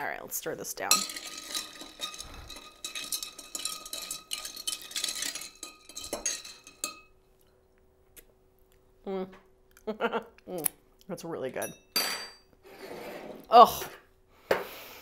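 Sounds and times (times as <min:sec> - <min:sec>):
ice cubes clinking in a glass: 0:00.9 - 0:07.1.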